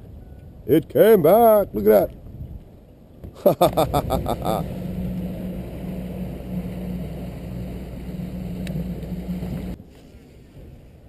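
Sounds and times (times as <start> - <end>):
water and wind noise: 0.0 - 11.0
boat motor running: 3.6 - 9.8.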